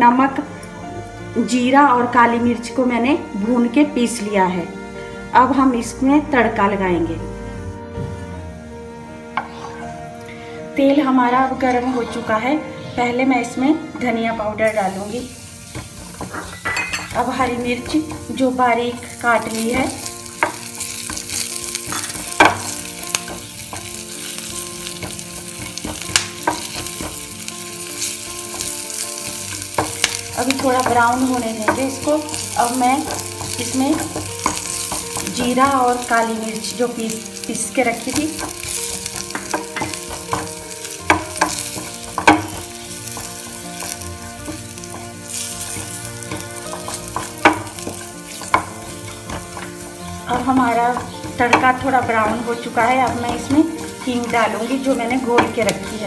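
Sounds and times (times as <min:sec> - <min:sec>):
wooden spatula scraping pan: 0:13.9 - 0:56.0
food sizzling in hot oil: 0:14.5 - 0:56.0
spatula knocking against pan: 0:38.4 - 0:54.4.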